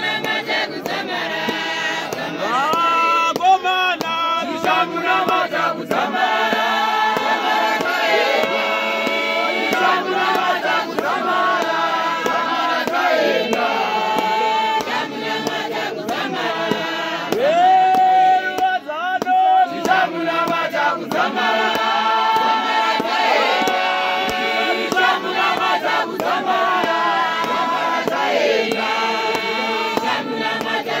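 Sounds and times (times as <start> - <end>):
group singing a hymn: 0.0 - 31.0
man leading singing: 0.1 - 31.0.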